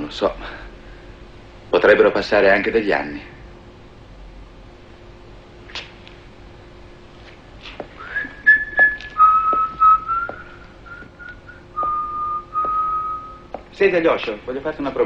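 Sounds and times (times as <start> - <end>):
faint steady hum: 0.0 - 15.0
person whistling a slow tune: 8.0 - 13.5.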